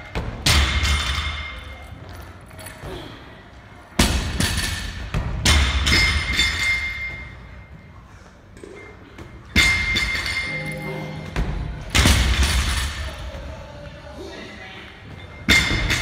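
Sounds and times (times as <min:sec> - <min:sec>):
gym equipment thudding with metallic ring: 0:04.0 - 0:07.4, 0:09.4 - 0:10.6, 0:15.5 - 0:16.0
background music: 0:09.6 - 0:16.0.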